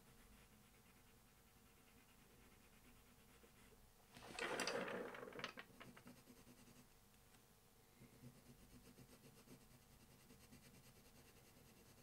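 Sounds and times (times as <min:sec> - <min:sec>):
pencil scratching on paper: 0:00.0 - 0:03.8, 0:05.8 - 0:06.9, 0:08.1 - 0:12.0.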